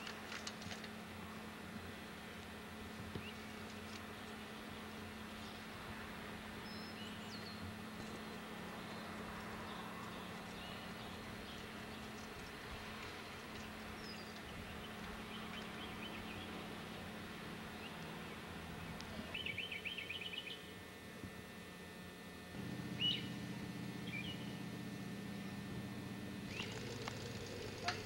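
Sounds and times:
steady low hum: 0:00.0 - 0:28.0
birds chirping: 0:03.0 - 0:20.8, 0:23.0 - 0:23.4, 0:24.0 - 0:24.6, 0:26.5 - 0:28.0.

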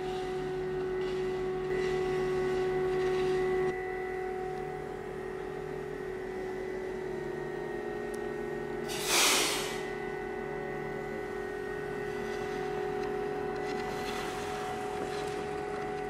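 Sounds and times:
machinery hum: 0:00.0 - 0:16.0
loud burst of hiss: 0:08.9 - 0:09.8.

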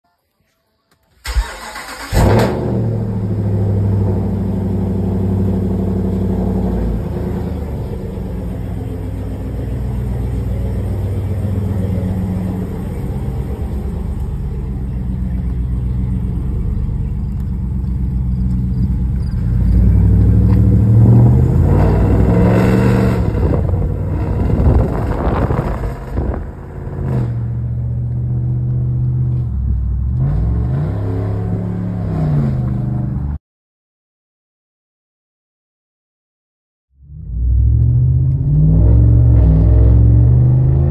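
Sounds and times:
truck engine starting and idling: 0:01.0 - 0:33.3
engine revving: 0:01.3 - 0:29.4, 0:30.0 - 0:33.2, 0:37.0 - 0:40.9.

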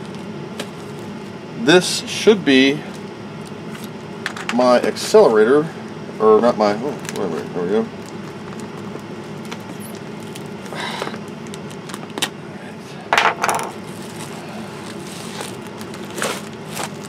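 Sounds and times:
plastic mailer handling: 0:13.8 - 0:17.0
plastic mailer tearing: 0:13.8 - 0:17.0.

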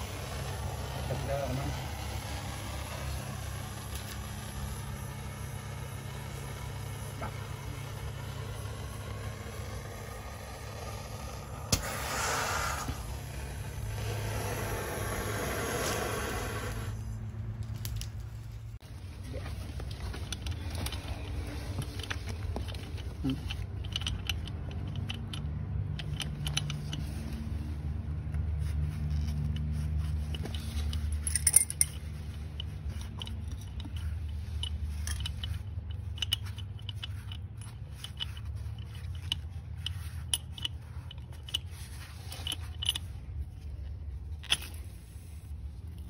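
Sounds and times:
steady low rumble: 0:00.0 - 0:46.0
metal clamp clicks and clinks: 0:20.2 - 0:27.1, 0:30.2 - 0:43.6, 0:44.4 - 0:44.9.

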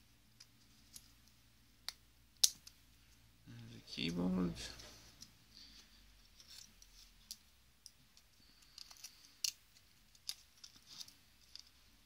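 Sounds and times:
small plastic parts clicking: 0:06.4 - 0:11.8.

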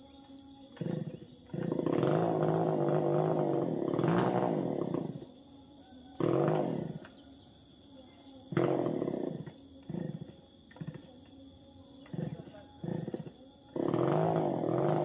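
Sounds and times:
birds chirping: 0:00.0 - 0:15.0
chainsaw revving: 0:00.8 - 0:05.3, 0:06.2 - 0:07.1, 0:08.5 - 0:10.2, 0:12.1 - 0:15.0.

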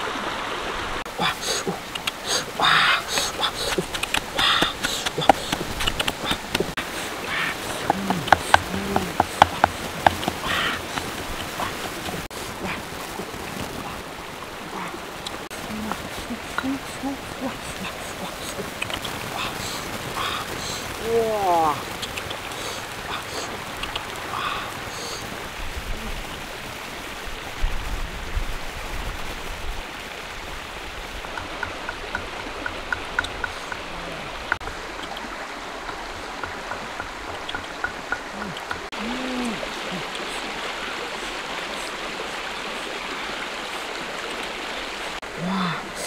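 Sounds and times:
creek water babbling: 0:00.0 - 0:46.0.

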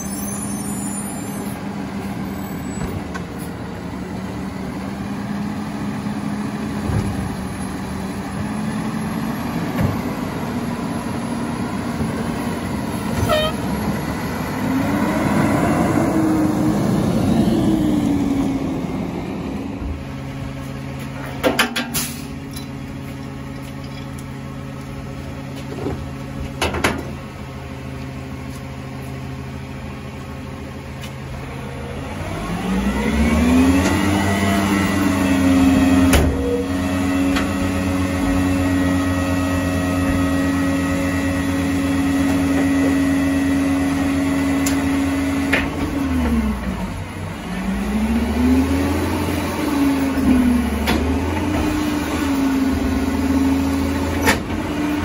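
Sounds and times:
garbage truck engine revving: 0:03.7 - 0:20.6, 0:31.5 - 0:55.0.

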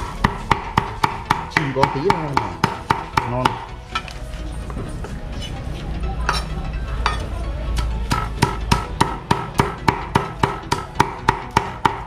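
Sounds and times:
cleaver chopping meat on board: 0:00.2 - 0:03.7, 0:08.1 - 0:12.0.

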